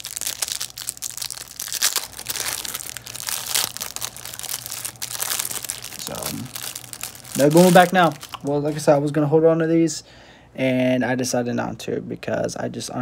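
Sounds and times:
plastic wrapper crinkling and tearing: 0:00.0 - 0:09.1.

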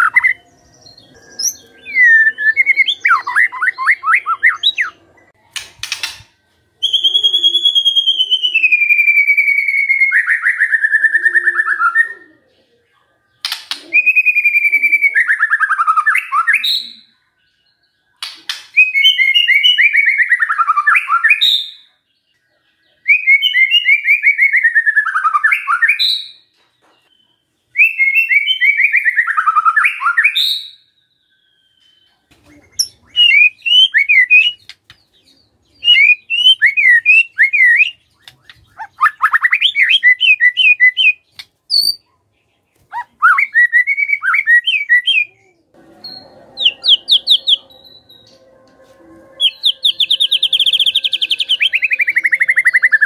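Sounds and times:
bird singing trills: 0:00.0 - 0:53.0
sharp whistled bird notes: 0:27.8 - 0:34.7, 0:35.8 - 0:42.0, 0:46.0 - 0:53.0.

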